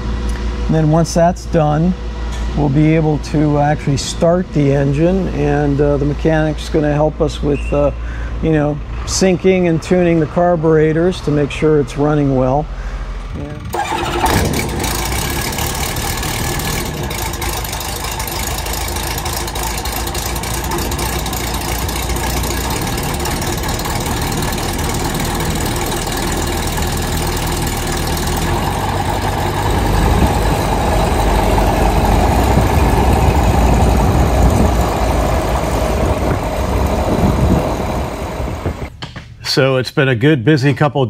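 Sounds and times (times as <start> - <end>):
aircraft engine idling: 13.4 - 38.9.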